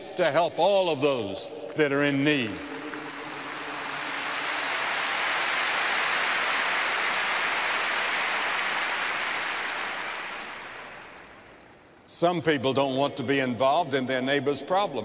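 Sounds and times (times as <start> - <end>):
crowd applauding: 2.4 - 11.6.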